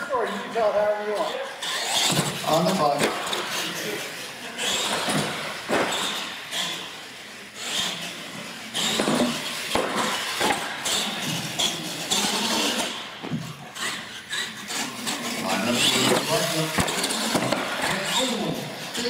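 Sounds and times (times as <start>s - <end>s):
toy truck motor whining: 0.0s - 19.0s.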